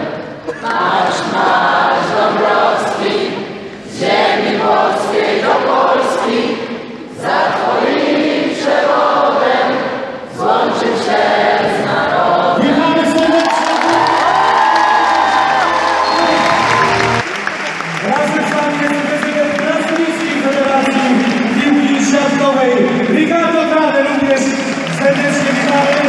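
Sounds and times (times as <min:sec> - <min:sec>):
crowd singing in unison: 0:00.0 - 0:14.6.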